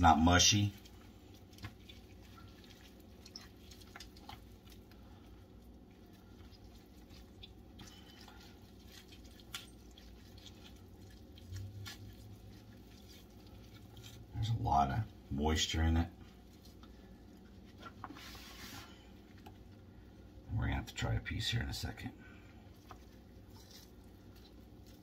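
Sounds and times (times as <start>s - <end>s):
low steady hum: 0.0s - 25.0s
wet squishing of meat pulled apart: 0.5s - 15.3s, 22.6s - 25.0s.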